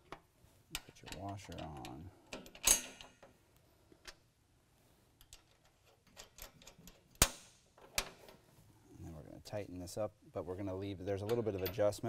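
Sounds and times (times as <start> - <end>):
metal washer clinking: 11.1 - 12.0.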